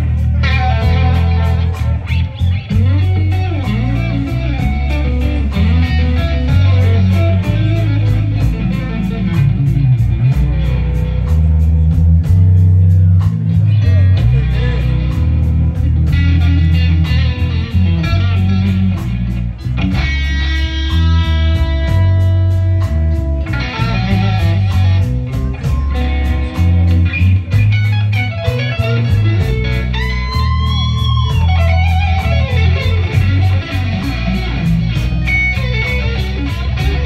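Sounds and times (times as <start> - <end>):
electric guitar solo: 0.0 - 11.6, 13.0 - 37.0
bass guitar: 0.0 - 37.0
drums: 0.0 - 37.0.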